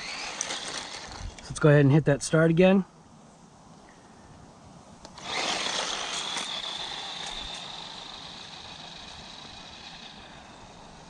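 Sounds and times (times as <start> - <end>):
toy truck electric motor whining: 0.0 - 1.4, 5.1 - 11.0.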